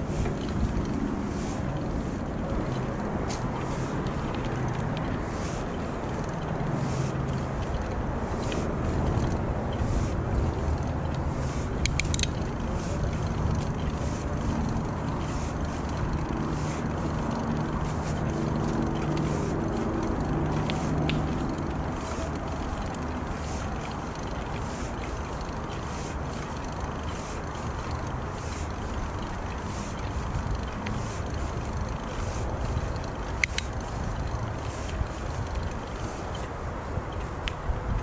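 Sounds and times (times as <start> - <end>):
bicycle rolling noise: 0.0 - 38.0
wind: 0.0 - 38.0
quick clicks: 11.8 - 13.4.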